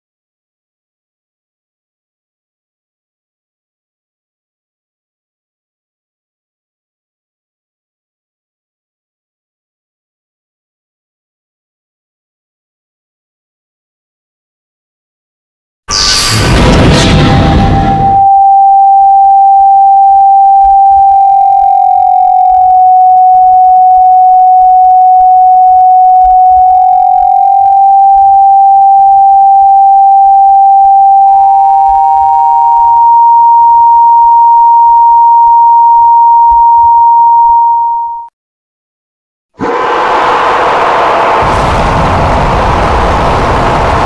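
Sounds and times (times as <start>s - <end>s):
higher electronic tone: 15.9s - 38.3s
steady electronic beep tone: 16.1s - 38.3s.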